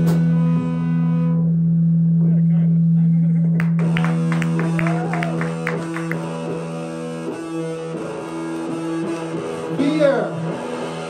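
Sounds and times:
bass guitar: 0:00.0 - 0:11.0
electric guitar: 0:00.0 - 0:11.0.

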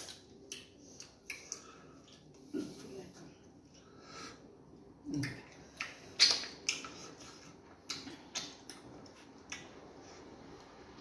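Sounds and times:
eating clicks: 0:05.1 - 0:09.8.

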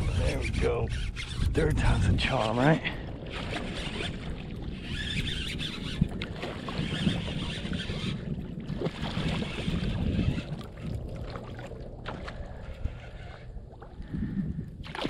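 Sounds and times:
wind rumble on microphone: 0:00.0 - 0:15.0
water splashing: 0:02.2 - 0:14.1.

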